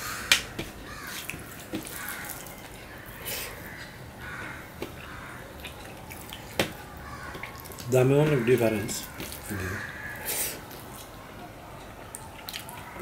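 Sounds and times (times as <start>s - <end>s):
fingers squishing rice and curry: 0.0s - 13.0s.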